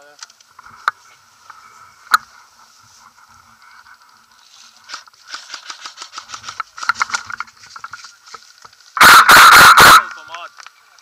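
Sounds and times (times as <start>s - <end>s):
footsteps crunching through dry grass: 0.5s - 9.0s.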